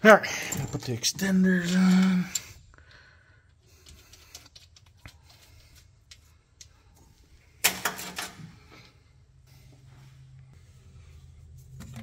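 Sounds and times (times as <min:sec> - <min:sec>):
metal parts clicking: 0:00.3 - 0:02.6, 0:03.6 - 0:06.7.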